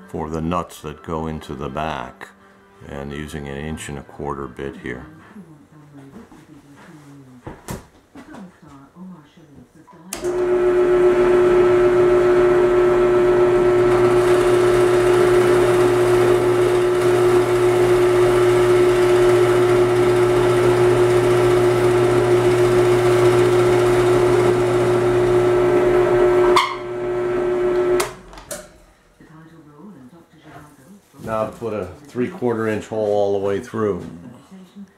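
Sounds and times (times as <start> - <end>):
drill press humming: 10.2 - 28.9.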